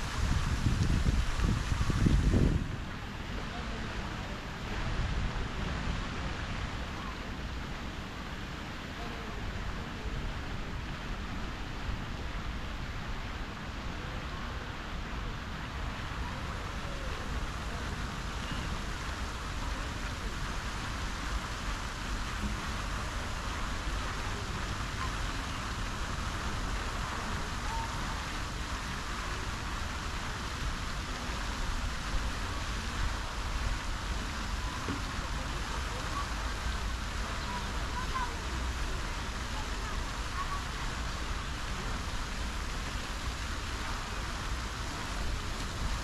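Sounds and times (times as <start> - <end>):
wind rumble: 0.0 - 3.1
fountain jets splashing water: 0.0 - 46.0.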